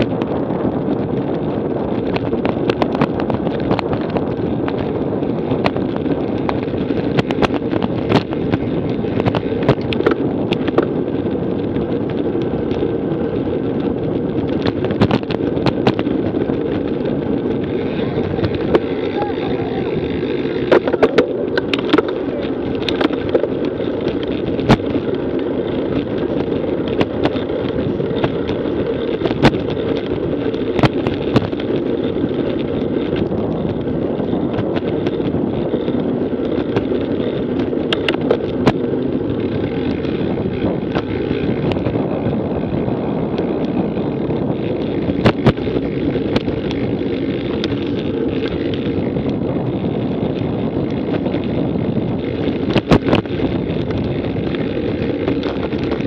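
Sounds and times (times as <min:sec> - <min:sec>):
wind and road noise: 0:00.0 - 0:56.0
sharp clicks and knocks: 0:20.6 - 0:25.0, 0:37.6 - 0:38.8.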